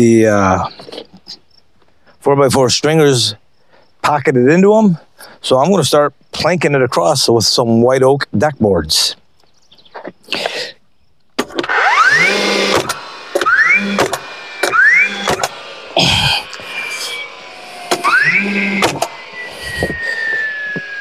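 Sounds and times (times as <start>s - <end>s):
nailer firing crack: 11.4s - 15.6s, 17.8s - 19.2s
nailer motor whining: 11.4s - 21.0s.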